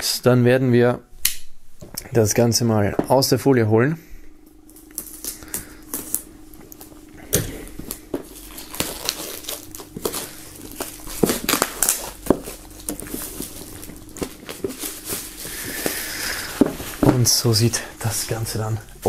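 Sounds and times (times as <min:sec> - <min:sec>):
plastic film peeled and crinkling: 0:04.7 - 0:06.9, 0:07.8 - 0:18.7.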